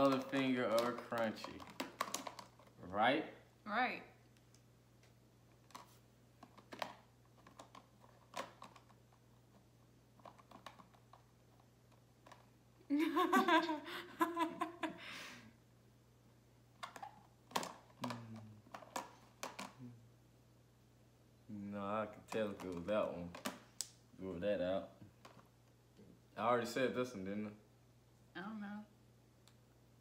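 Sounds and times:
plastic tubes clicking and tapping: 0.0s - 2.7s
woman laughing: 12.9s - 15.4s.

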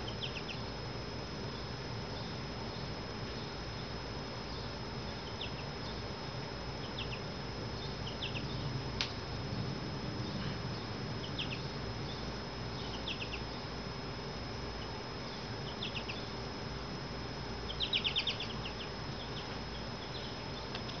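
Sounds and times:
goldfinches chirping: 0.0s - 8.8s, 10.0s - 14.0s, 14.6s - 16.8s, 17.5s - 21.0s
low hum: 0.0s - 21.0s.

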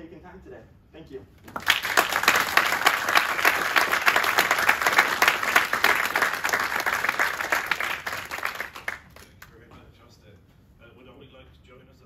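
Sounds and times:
audience applauding: 1.5s - 9.5s.

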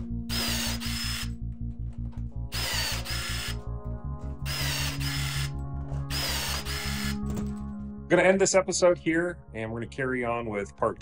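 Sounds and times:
background music with steady beat: 0.0s - 11.0s
rivet gun motor whir: 0.3s - 1.3s, 2.5s - 3.6s, 4.5s - 5.5s, 6.1s - 7.2s.

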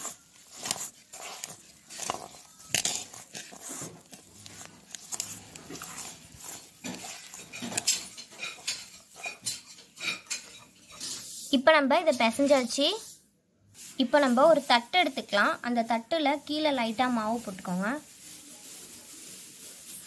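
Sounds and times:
dough scraping metal bowl: 0.0s - 11.6s
hand kneading wet dough: 0.0s - 11.6s.

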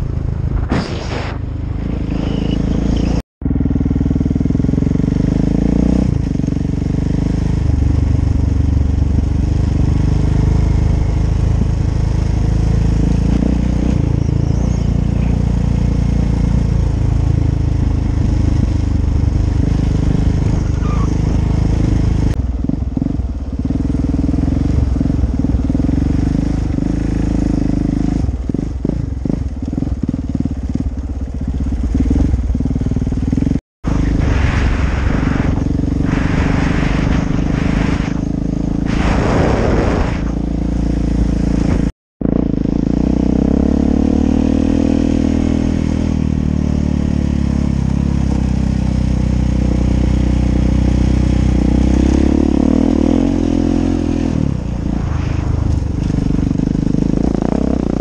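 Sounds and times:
motorcycle engine running: 0.0s - 0.8s, 1.4s - 58.0s
wind noise: 0.0s - 3.2s, 33.8s - 41.9s, 52.0s - 57.8s
road noise: 0.0s - 58.0s.

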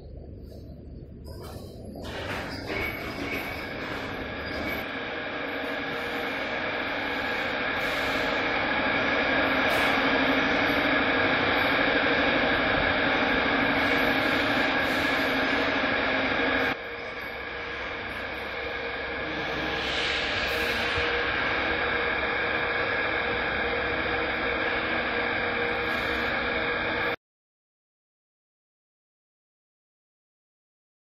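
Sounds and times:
machinery hum: 0.0s - 27.2s.

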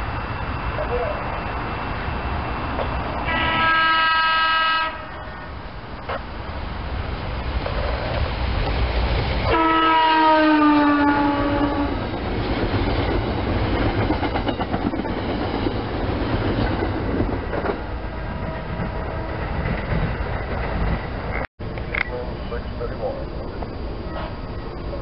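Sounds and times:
train cars rumbling: 0.0s - 25.0s
train horn: 3.2s - 5.5s, 9.5s - 12.1s
wheels clicking over rail joints: 7.5s - 9.3s, 12.0s - 22.1s.

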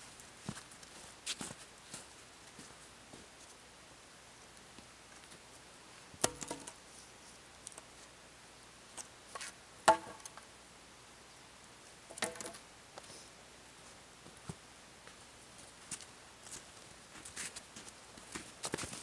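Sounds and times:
wooden poles knocking: 6.2s - 6.8s, 9.9s - 10.4s, 12.1s - 12.6s.

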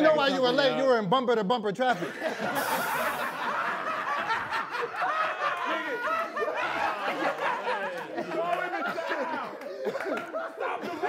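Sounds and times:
people laughing: 1.8s - 11.0s
overlapping voices: 2.6s - 11.0s.

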